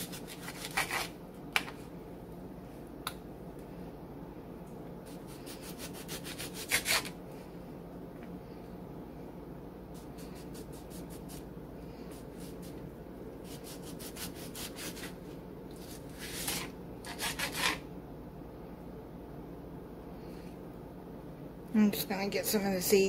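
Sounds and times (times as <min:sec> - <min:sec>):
knife cutting on plastic board: 0:00.0 - 0:01.7, 0:05.5 - 0:07.1, 0:13.4 - 0:15.2, 0:15.8 - 0:17.8
low background hum: 0:00.0 - 0:23.0.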